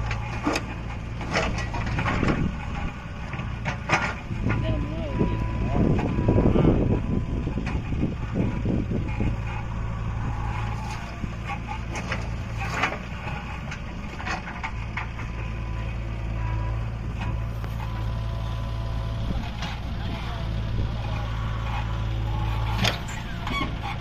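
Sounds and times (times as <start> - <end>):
knocks and clanks: 0.0 - 4.8
diesel engine running: 0.0 - 24.0.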